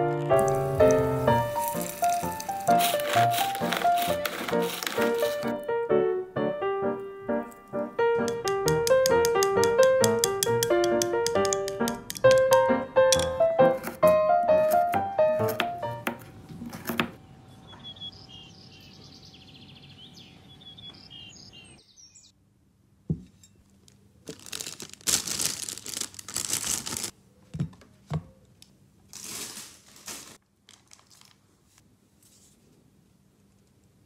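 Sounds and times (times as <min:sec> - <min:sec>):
plastic crinkling: 0:00.0 - 0:05.6, 0:23.8 - 0:27.1, 0:29.1 - 0:31.8
knife chopping on a cutting board: 0:13.2 - 0:16.2.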